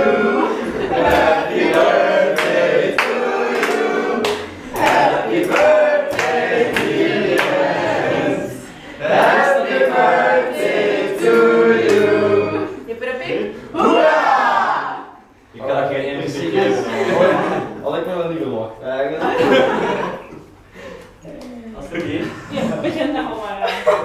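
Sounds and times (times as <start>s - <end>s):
group singing birthday song: 0.0s - 17.9s.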